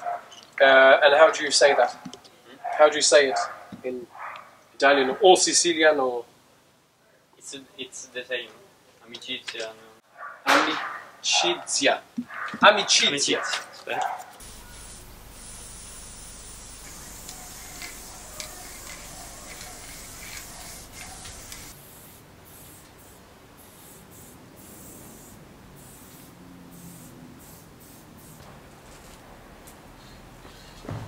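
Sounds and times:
spray paint can hissing: 14.4s - 29.1s, 30.0s - 30.9s.

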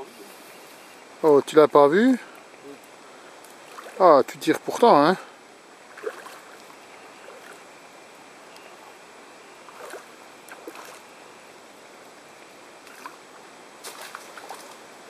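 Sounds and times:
steady outdoor hiss: 0.0s - 15.0s.

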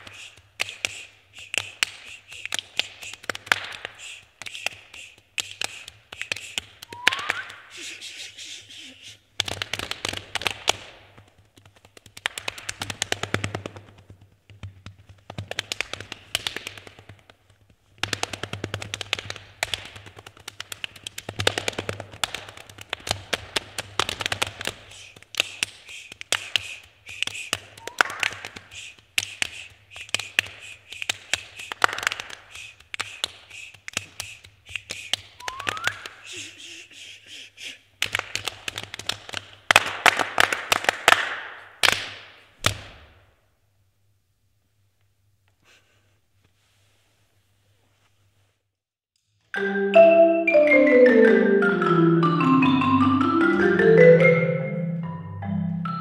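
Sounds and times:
finger snapping: 0.0s - 7.9s, 24.0s - 36.4s
rhythmic hand clapping: 0.0s - 43.1s, 51.2s - 55.2s
slapping chests and thighs: 0.0s - 43.3s.

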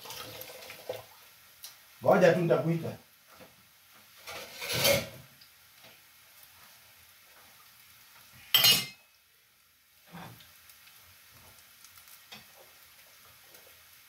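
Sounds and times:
fork scraping a frying pan: 4.2s - 5.2s.

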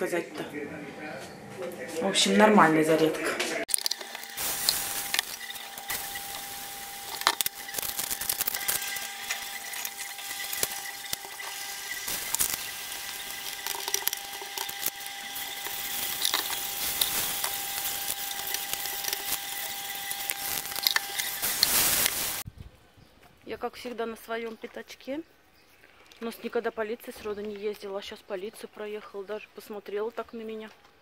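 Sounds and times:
thin whine: 3.7s - 22.4s
crepes sizzling in pans: 3.7s - 22.5s.

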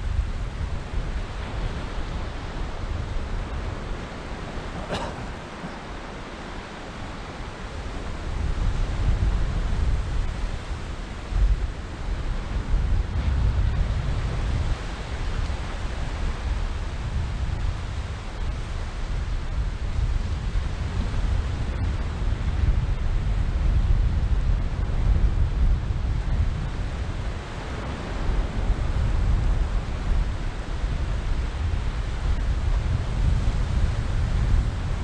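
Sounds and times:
surf hiss: 0.0s - 23.4s
wind buffeting microphone: 0.0s - 35.0s.

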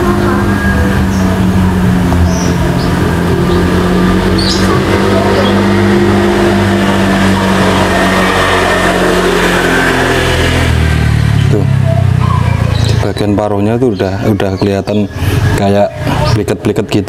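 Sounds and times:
loud engine-like hum: 0.0s - 17.0s.

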